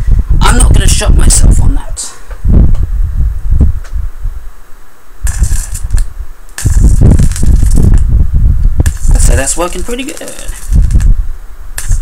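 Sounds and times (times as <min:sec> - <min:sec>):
high-voltage arc hissing: 0:05.2 - 0:12.0.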